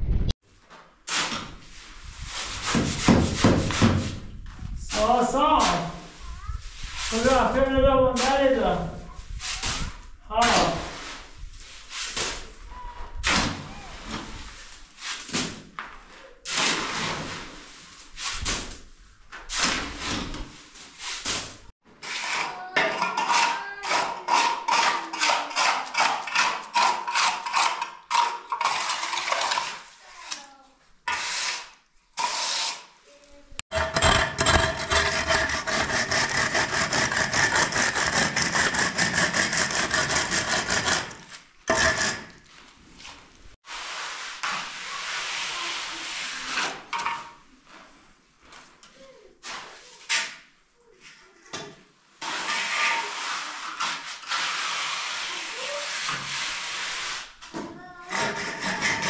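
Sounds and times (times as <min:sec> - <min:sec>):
straightedge rasping across cement: 0:22.0 - 0:30.4, 0:31.1 - 0:32.9, 0:33.7 - 0:42.5, 0:58.1 - 0:59.0
trowel scraping wet cement: 0:22.0 - 0:30.5, 0:31.1 - 0:32.9, 0:33.7 - 0:42.5, 0:52.2 - 0:57.3, 0:58.1 - 0:59.0.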